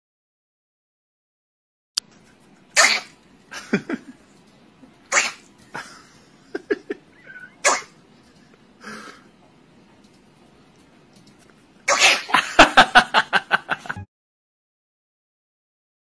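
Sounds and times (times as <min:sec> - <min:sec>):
dog yipping and whining: 0:07.2 - 0:07.6.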